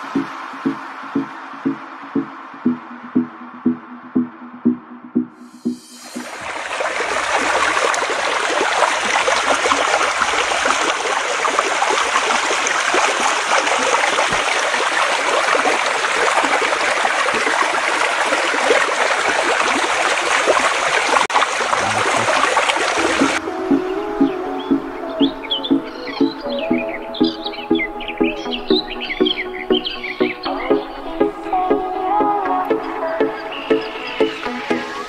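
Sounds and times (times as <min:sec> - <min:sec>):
stream rushing over rocks: 0:06.0 - 0:23.4.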